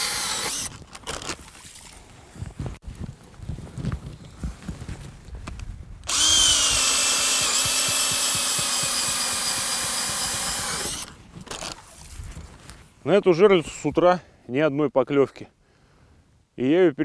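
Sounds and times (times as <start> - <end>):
ice auger motor whine: 6.1 - 11.1.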